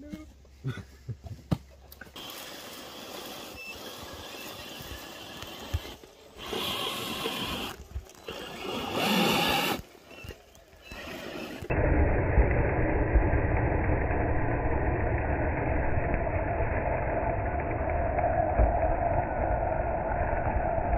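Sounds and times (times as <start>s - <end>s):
tyres scrabbling on loose dirt: 1.3s - 11.7s
toy truck electric motor whining: 2.2s - 11.7s.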